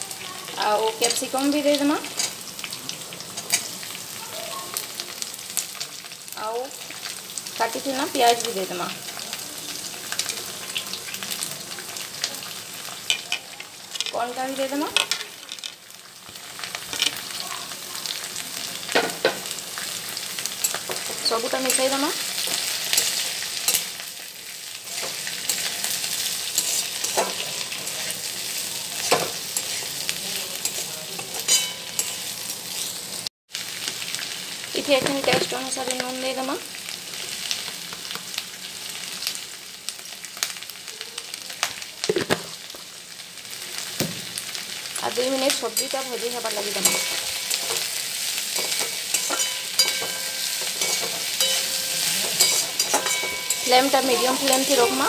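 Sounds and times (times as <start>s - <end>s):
vegetables sizzling in oil: 0.0s - 55.0s
metal spatula scraping wok: 20.4s - 24.0s, 24.8s - 33.0s, 45.7s - 55.0s.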